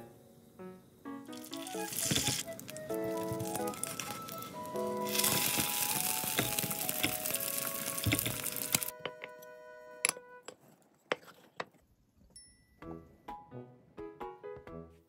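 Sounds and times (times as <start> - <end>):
soft background music: 0.0 - 10.6, 12.4 - 15.0
egg sizzling in oil: 1.0 - 9.0.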